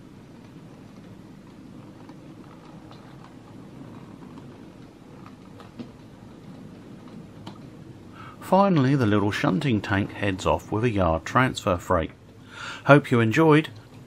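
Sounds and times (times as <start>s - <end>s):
light clicks of wheels on track: 0.0s - 8.5s
model wagon wheels rumbling on rails: 0.0s - 12.2s, 12.8s - 14.0s.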